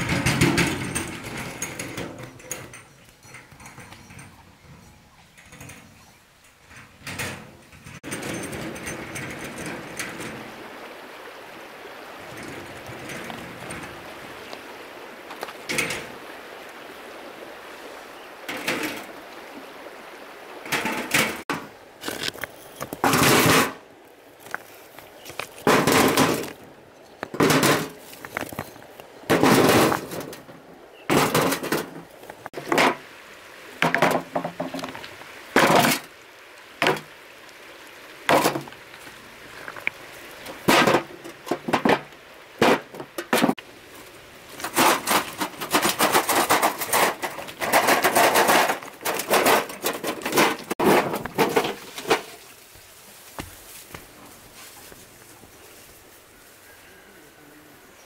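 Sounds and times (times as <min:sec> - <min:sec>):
stones dropped into metal wheelbarrow: 0:00.0 - 0:04.4, 0:15.3 - 0:16.2, 0:18.5 - 0:19.2, 0:20.6 - 0:23.8, 0:24.4 - 0:33.1, 0:33.8 - 0:36.1, 0:36.8 - 0:37.1, 0:38.3 - 0:43.6, 0:44.5 - 0:52.6.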